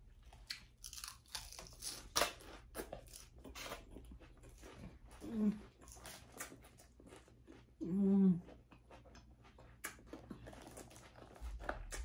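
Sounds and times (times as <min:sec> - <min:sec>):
chewing crisp lettuce: 0:00.0 - 0:12.0.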